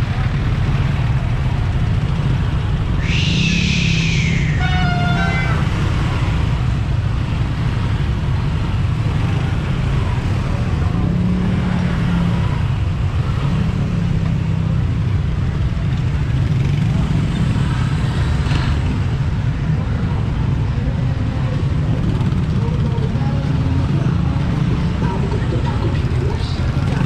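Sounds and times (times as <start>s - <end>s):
road traffic rumble: 0.0s - 27.0s
horn toot: 3.0s - 5.7s.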